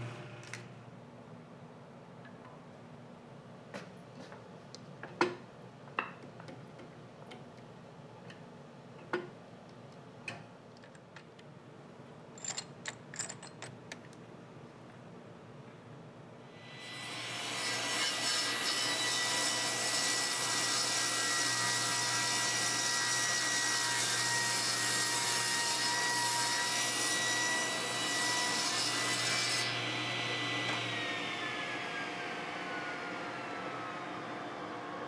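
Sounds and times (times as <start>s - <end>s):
table saw cutting wood: 16.6s - 34.2s.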